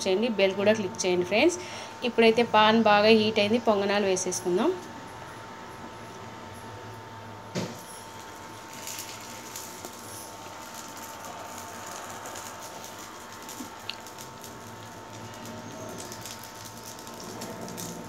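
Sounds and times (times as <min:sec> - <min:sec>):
faint steady hum: 0:00.0 - 0:18.0
batter sizzling in oil: 0:07.5 - 0:18.0.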